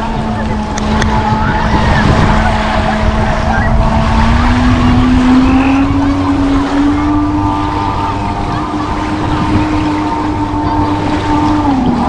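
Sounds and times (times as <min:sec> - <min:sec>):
motorboat engine droning: 0:00.0 - 0:12.0
small waves lapping at shore: 0:00.0 - 0:12.0.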